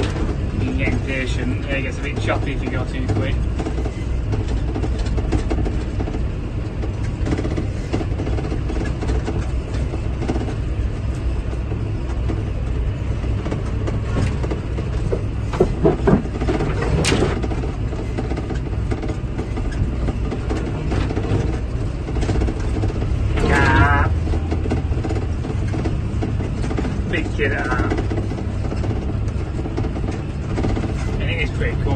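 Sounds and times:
tractor engine running: 0.0 - 31.9
sharp knocks: 13.4 - 27.1.

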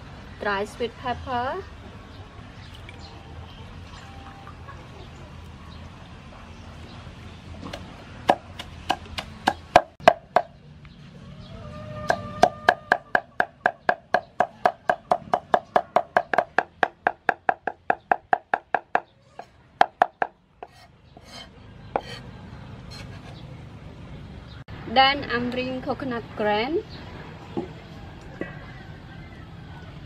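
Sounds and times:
cleaver chopping on wooden board: 7.7 - 10.5.

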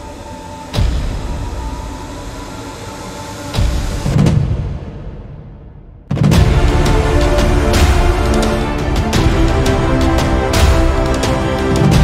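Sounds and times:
drum hits: 3.6 - 12.0
heavy bass line: 6.3 - 12.0.

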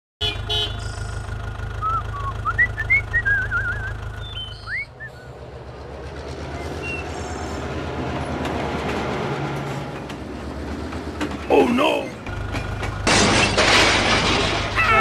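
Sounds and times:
engine humming: 0.2 - 15.0
train running on rails: 0.5 - 13.1
high whistling chirps: 1.8 - 5.4, 6.5 - 7.6.

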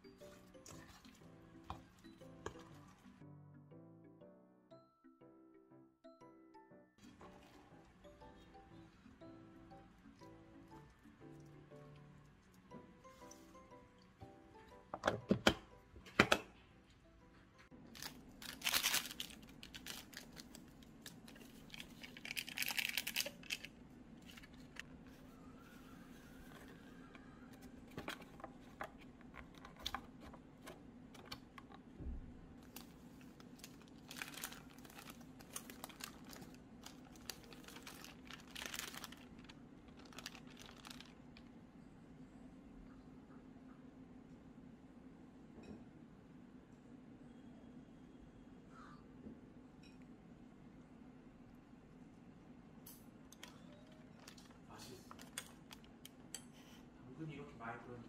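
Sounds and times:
food packaging crinkling and tearing: 17.9 - 24.8, 32.6 - 41.5, 53.4 - 56.0.

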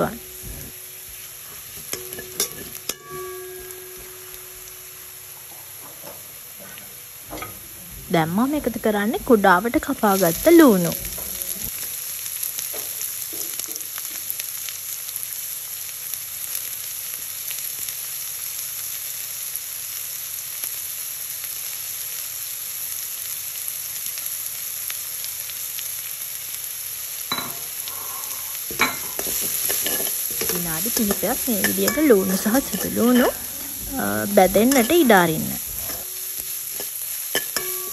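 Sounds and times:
onions sizzling in hot oil: 0.0 - 37.9
spatula scraping pan: 28.7 - 37.9.

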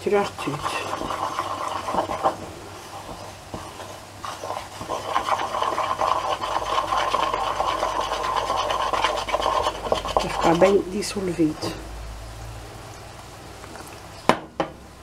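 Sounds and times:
fingers mixing batter in bowl: 0.0 - 11.8.

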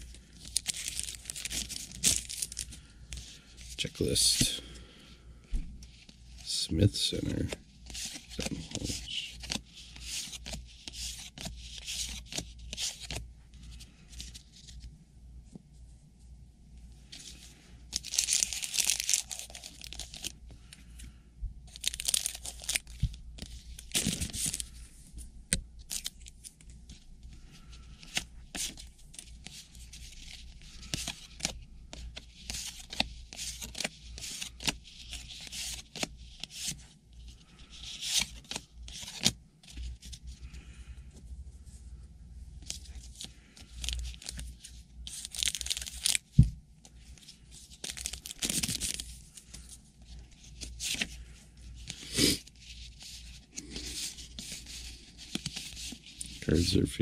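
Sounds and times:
wrappers tearing and crinkling: 0.4 - 2.7, 18.0 - 20.3, 21.7 - 22.9, 45.1 - 46.3, 47.7 - 49.0
cards being flipped: 7.2 - 13.2, 30.2 - 36.8, 37.9 - 40.1.

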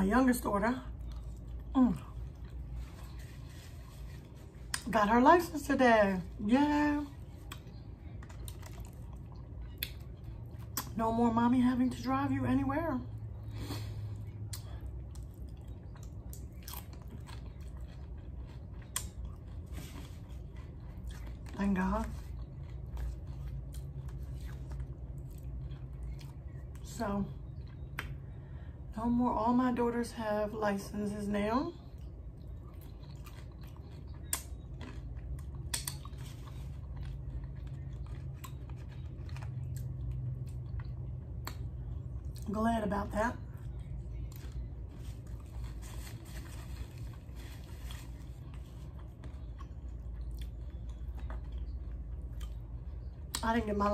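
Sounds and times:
low hum: 0.0 - 53.9
crunching tortilla chips: 7.1 - 11.0, 13.8 - 26.9, 32.0 - 42.4, 43.6 - 53.4.

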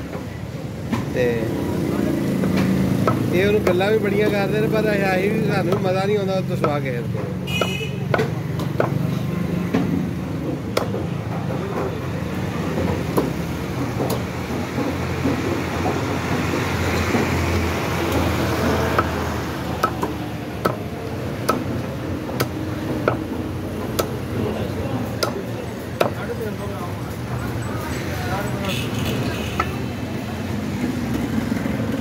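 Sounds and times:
road traffic rumble: 0.0 - 32.0
cleaver chopping on wooden block: 2.4 - 3.8, 6.6 - 10.0, 10.6 - 11.1, 13.0 - 14.3, 18.1 - 24.3, 25.1 - 26.3.

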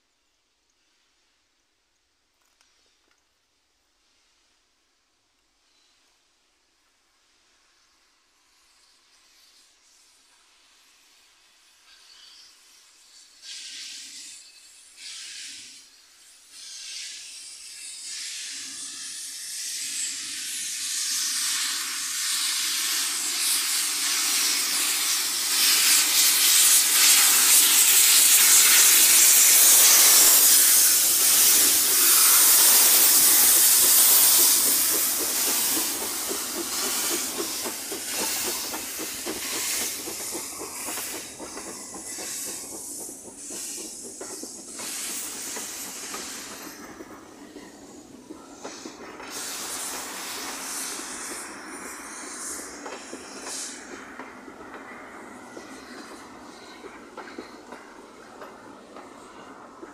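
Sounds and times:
steam locomotives hissing steam: 3.8 - 59.9
coaches rolling on rails: 19.8 - 59.9.

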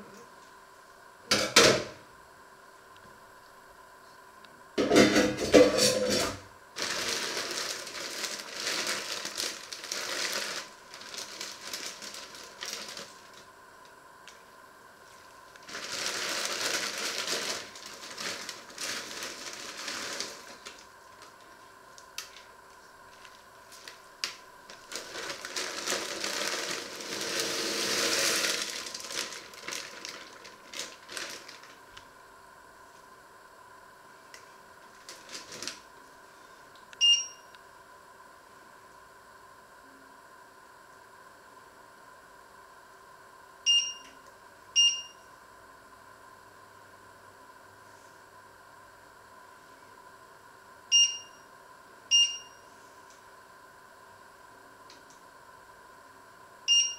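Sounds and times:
plastic bag crinkling: 6.8 - 13.5, 15.1 - 32.0, 34.9 - 35.9.

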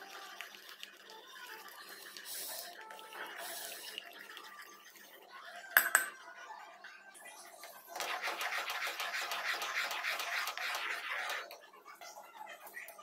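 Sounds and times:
metal tumbler tapping a pan: 5.8 - 6.2.

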